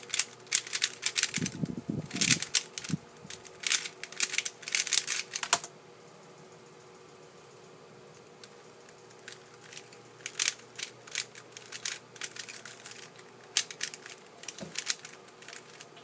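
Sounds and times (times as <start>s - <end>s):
puzzle cube plastic clicking: 0.1s - 5.7s, 9.1s - 15.8s.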